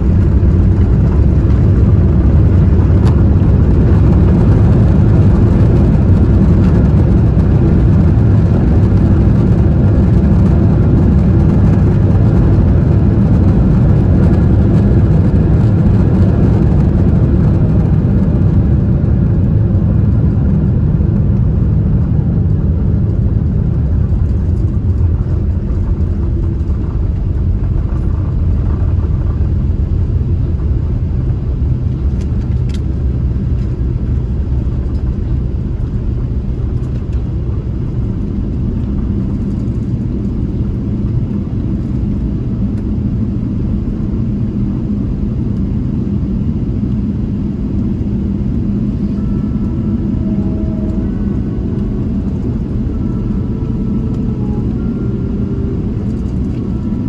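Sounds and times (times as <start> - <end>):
aircraft cabin rumble: 0.0 - 57.0.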